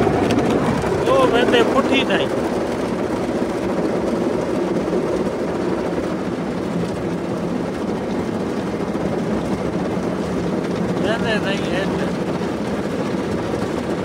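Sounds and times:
rotating wash brushes: 0:00.0 - 0:06.3.

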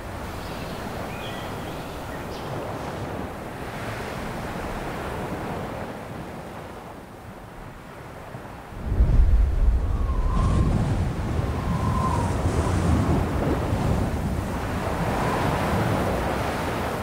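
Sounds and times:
faint high chirps: 0:00.2 - 0:02.6
steady rushing noise: 0:08.7 - 0:11.6.

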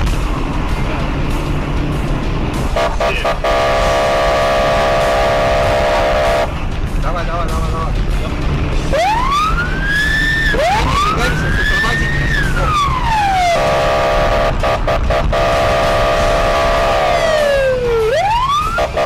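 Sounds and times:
engine and road rumble: 0:00.0 - 0:19.0
police siren wailing: 0:03.4 - 0:06.5, 0:08.9 - 0:19.0.

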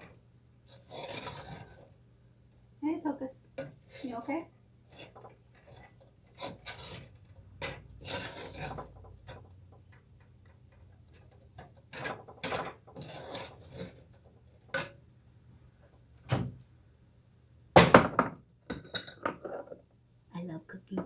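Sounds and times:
kitchen items knocking and clicking: 0:06.5 - 0:14.0, 0:17.8 - 0:19.8.

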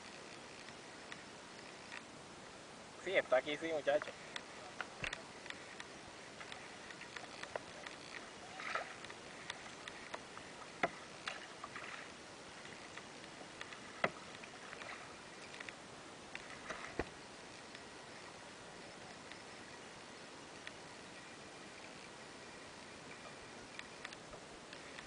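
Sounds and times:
hiss of wind and water: 0:00.0 - 0:25.0
paddle splashes and drips: 0:04.0 - 0:18.6.

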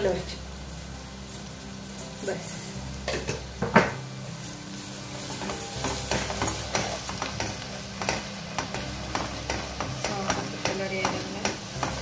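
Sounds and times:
soft sizzle: 0:00.0 - 0:12.0.

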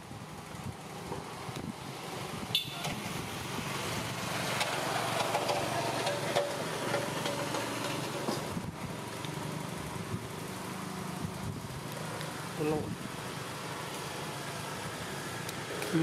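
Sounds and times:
engine running steadily: 0:00.0 - 0:16.0.

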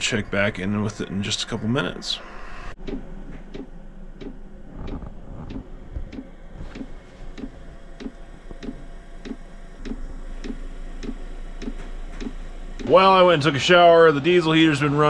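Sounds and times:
steady low hum: 0:00.0 - 0:15.0
fuel pump ticking: 0:02.8 - 0:13.3.

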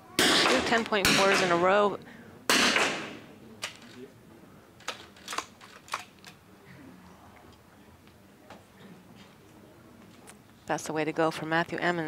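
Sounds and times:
rifle shot with echo: 0:02.5 - 0:03.3.

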